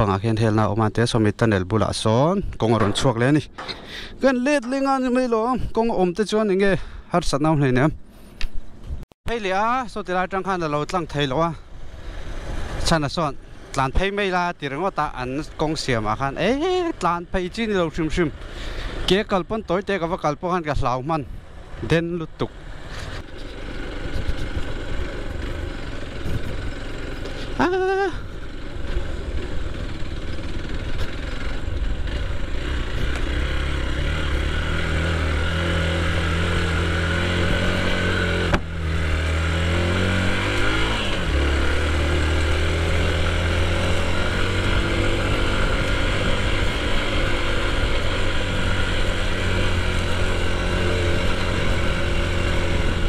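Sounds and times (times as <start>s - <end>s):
motorcycle engine running: 22.5s - 53.0s.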